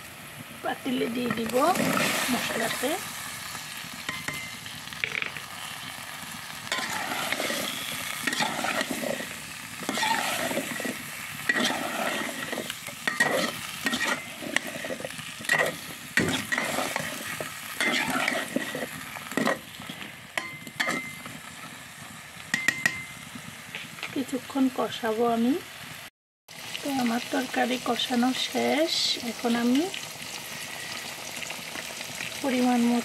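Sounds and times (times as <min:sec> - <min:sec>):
spice paste sizzling: 0:00.0 - 0:33.0
metal spatula scraping pot: 0:06.7 - 0:21.8.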